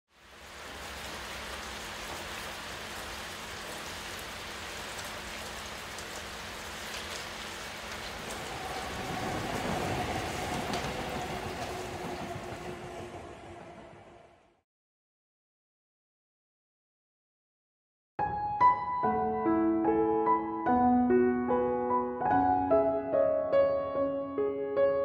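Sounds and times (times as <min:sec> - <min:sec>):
rain on wet pavement: 0:00.1 - 0:14.1
passing vehicle rumble: 0:07.9 - 0:14.6.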